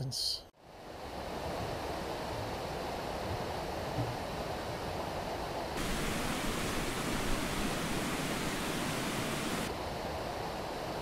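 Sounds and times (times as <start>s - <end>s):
small waterfall hissing: 1.5s - 11.0s
creek water rushing: 5.8s - 10.0s.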